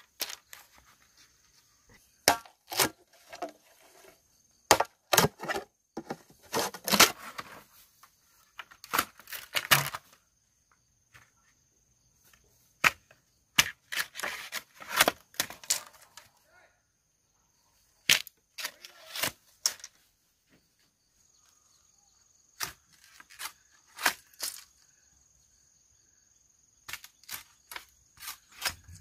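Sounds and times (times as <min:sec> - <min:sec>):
wooden knocks and chopping: 0:04.7 - 0:07.1.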